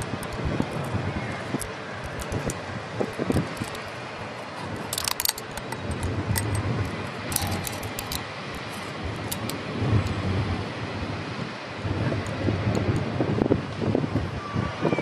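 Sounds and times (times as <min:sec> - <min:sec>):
small sharp clicks: 0:00.0 - 0:02.6, 0:04.9 - 0:09.6
wind buffeting microphone: 0:00.0 - 0:15.0.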